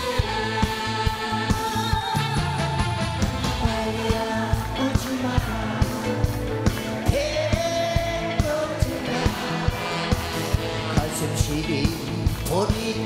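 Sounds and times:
guitar: 0.0 - 13.0
steady drum beat: 0.0 - 13.0
man singing: 3.6 - 13.0.

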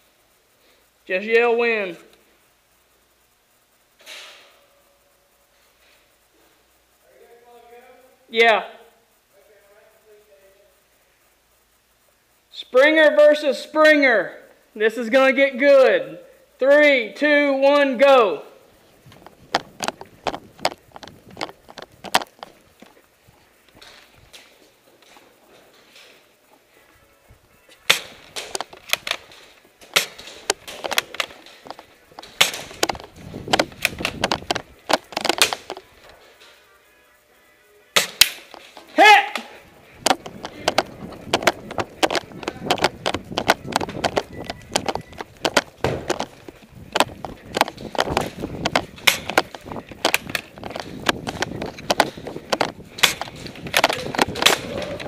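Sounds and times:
footsteps running on concrete: 19.0 - 25.0, 27.9 - 35.8, 39.8 - 55.0
sharp clacks and knocks: 19.1 - 23.0, 27.9 - 36.2, 39.9 - 55.0.

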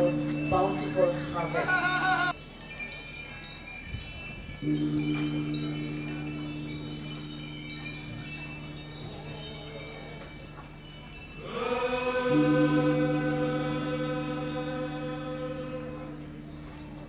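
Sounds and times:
men chanting in a drone: 11.4 - 16.3.

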